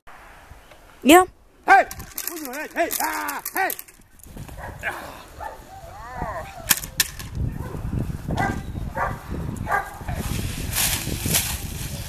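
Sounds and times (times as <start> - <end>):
sharp cracks: 1.9 - 4.0
dog whining: 5.4 - 6.9.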